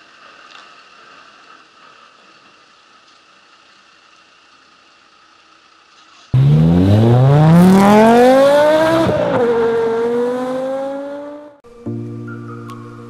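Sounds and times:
car engine accelerating: 0:06.3 - 0:11.6
soft music: 0:11.6 - 0:13.0.

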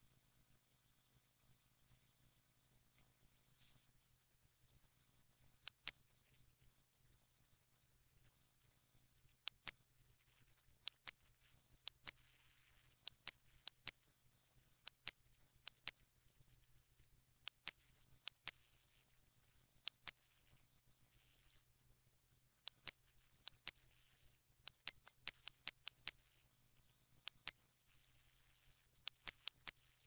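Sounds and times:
faint steady hum: 0:00.0 - 0:30.0
computer mouse button clicking: 0:05.6 - 0:06.0, 0:09.4 - 0:09.8, 0:10.8 - 0:11.2, 0:11.8 - 0:14.0, 0:14.9 - 0:16.0, 0:17.4 - 0:18.9, 0:19.9 - 0:20.4, 0:22.7 - 0:26.4, 0:27.2 - 0:30.0.

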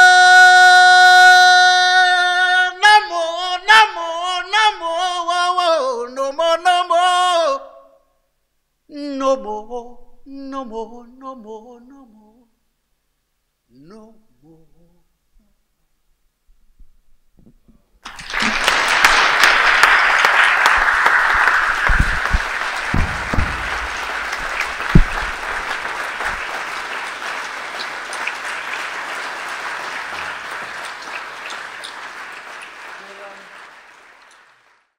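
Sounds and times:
audience applause: 0:18.0 - 0:34.9
low thumps: 0:21.2 - 0:26.4.

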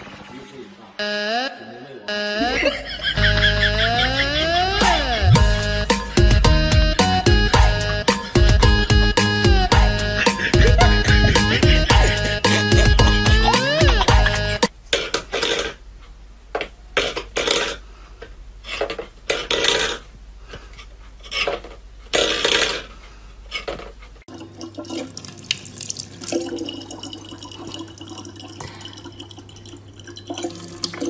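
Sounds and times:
low hum: 0:02.2 - 0:14.4
tap water running into bottle: 0:24.3 - 0:31.0.

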